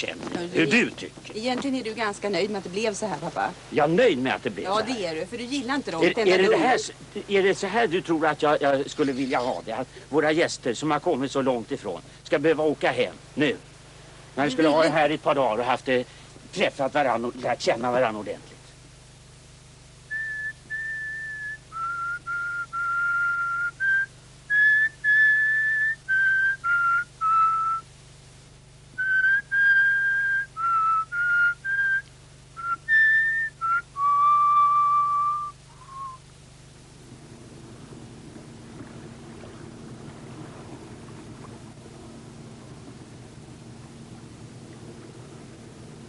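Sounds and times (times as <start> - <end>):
motorboat engine hum: 17.8 - 46.0
whistled tune: 20.1 - 27.8, 29.0 - 36.2.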